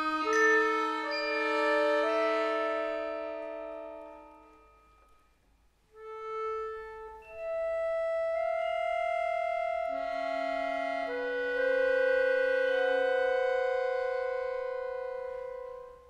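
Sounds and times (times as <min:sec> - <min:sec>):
accordion chord: 0:00.0 - 0:16.0.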